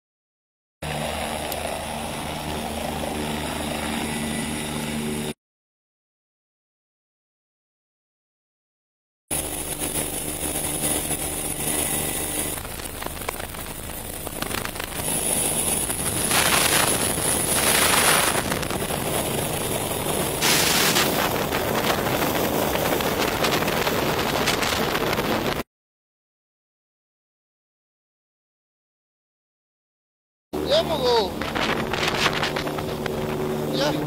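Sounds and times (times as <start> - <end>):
helicopter rotor and turbine: 0.8 - 5.4, 9.3 - 25.7, 30.6 - 34.0
high turbine whine: 0.8 - 5.4, 9.3 - 25.6, 30.6 - 34.0
wind buffeting microphone: 10.4 - 25.6, 31.2 - 34.0.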